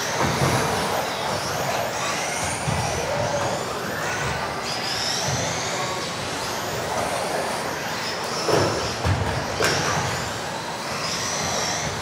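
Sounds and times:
rc car motors whining: 0.0s - 12.0s.

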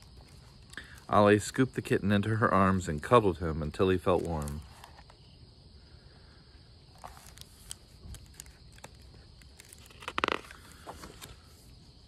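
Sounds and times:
paper rustling: 0.0s - 1.1s, 4.0s - 5.2s, 6.9s - 11.7s.

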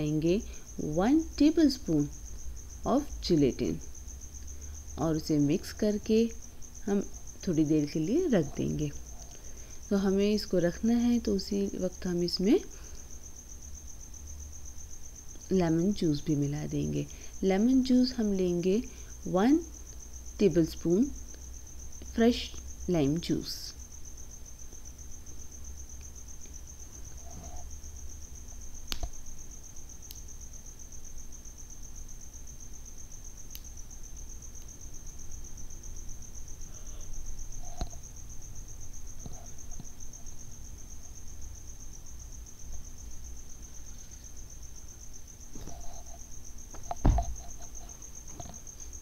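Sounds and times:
cricket trilling: 0.0s - 49.0s
loud thump: 46.9s - 47.4s.

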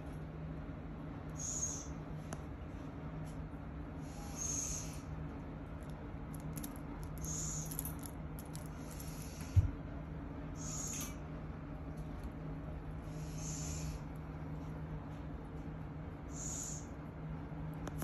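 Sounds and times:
barn owl rasping hisses: 13.0s - 14.0s.

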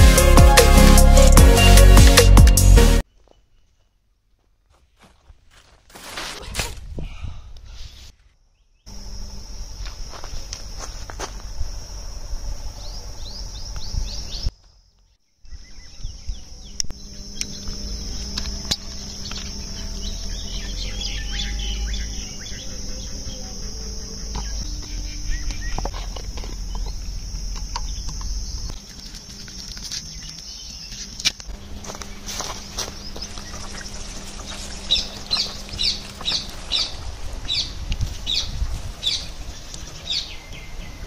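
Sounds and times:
high insect drone: 8.9s - 41.0s
bird chirps: 12.8s - 26.0s, 32.0s - 41.0s.

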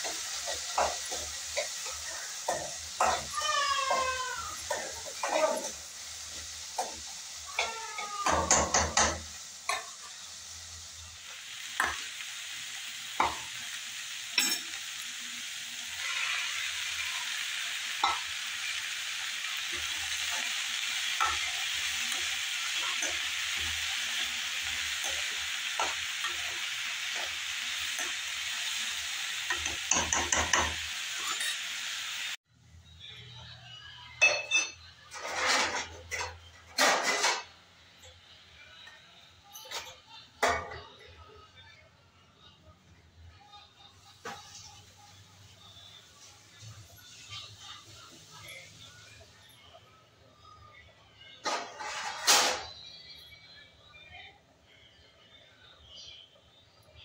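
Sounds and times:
vegetables sizzling in a pan: 0.0s - 32.4s, 43.3s - 50.7s
spatula scraping a metal pan: 15.9s - 17.4s, 35.1s - 37.5s, 51.4s - 52.7s.

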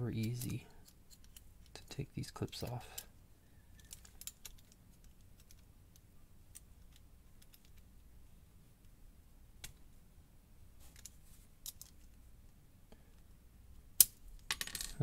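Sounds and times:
small metallic clicks: 0.2s - 3.1s, 3.7s - 7.9s.

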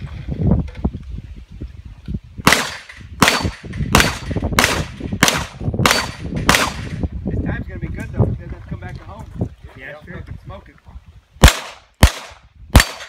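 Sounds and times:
pistol shots: 2.5s - 7.0s, 11.4s - 13.0s.

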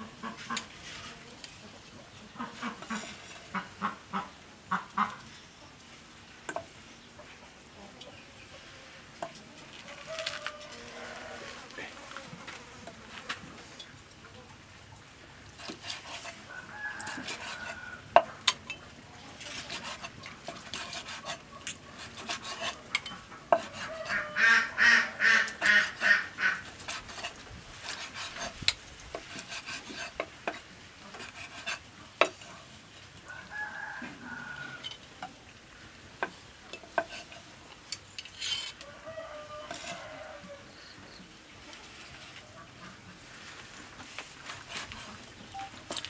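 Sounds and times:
chicken calling: 23.7s - 26.7s.

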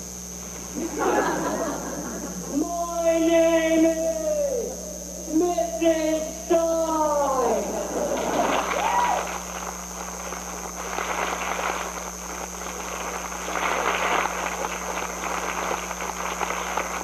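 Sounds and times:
steady electrical hum: 0.0s - 17.0s
audience applauding: 7.9s - 17.0s.

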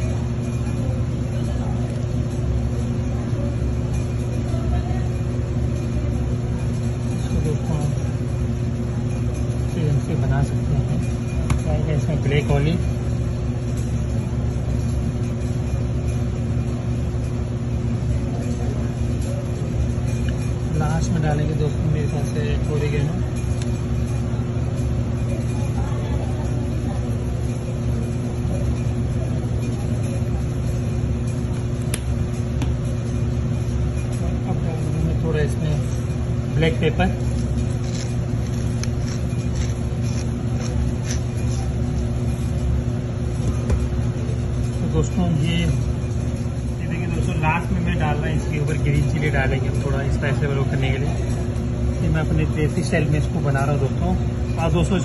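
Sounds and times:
machine rumble with hum: 0.0s - 55.0s
pepper mill grinding: 33.6s - 46.1s.

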